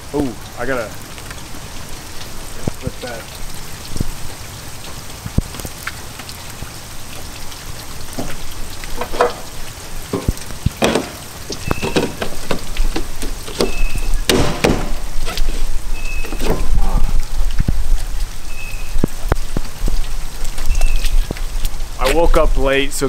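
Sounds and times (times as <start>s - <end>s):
rain hiss: 0.0s - 23.0s
clicks and knocks on water tank: 8.1s - 15.1s.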